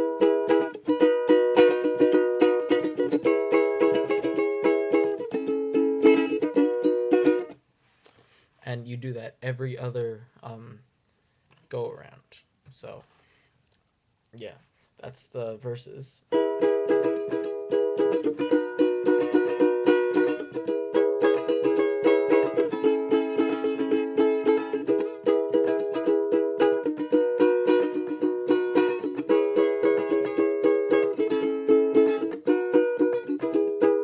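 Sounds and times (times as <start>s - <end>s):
ukulele strumming chords: 0.0s - 7.6s, 16.3s - 34.0s.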